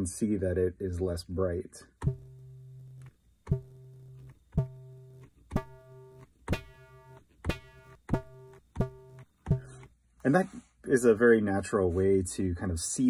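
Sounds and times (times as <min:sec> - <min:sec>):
plucked synthesizer notes: 0:02.0 - 0:09.9.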